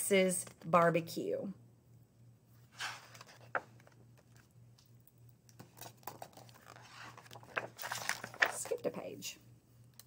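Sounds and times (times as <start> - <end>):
book being handled: 2.6 - 4.6, 5.6 - 8.8
page turning clicks: 5.6 - 8.8.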